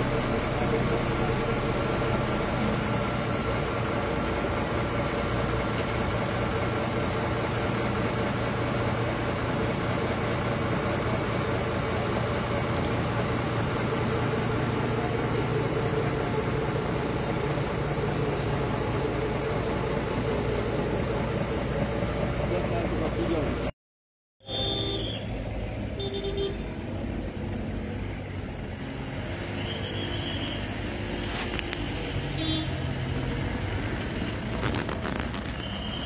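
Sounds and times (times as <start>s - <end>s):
vehicle engine idling: 0.0s - 23.7s.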